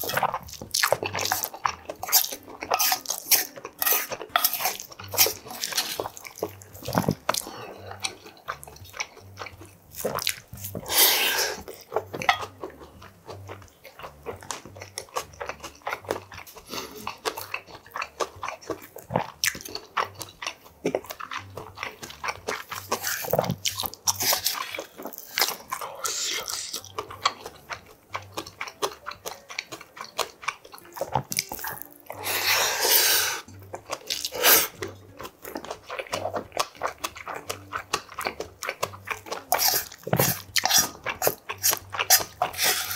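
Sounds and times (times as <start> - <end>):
man chewing: 0.0 - 42.9
wooden spoon scraping metal bowl: 2.8 - 6.0.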